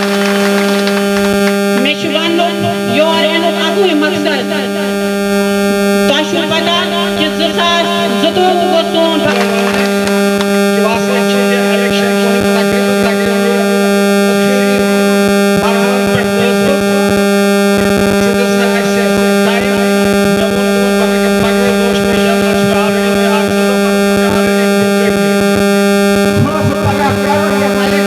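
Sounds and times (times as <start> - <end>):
faint steady tones: 0.0 - 28.0
loud steady low hum: 0.0 - 28.0
man speaking through loudspeakers: 6.1 - 10.0, 15.6 - 17.2, 18.2 - 25.4, 26.3 - 28.0.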